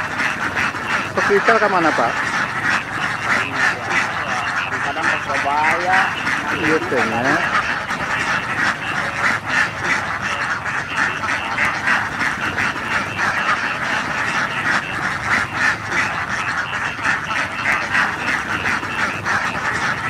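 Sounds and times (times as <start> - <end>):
flock of ducks quacking: 0.0 - 20.0.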